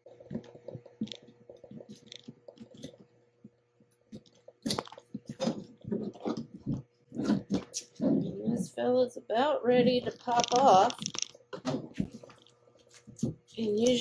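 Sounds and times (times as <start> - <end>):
scattered clicks: 9.9 - 11.4.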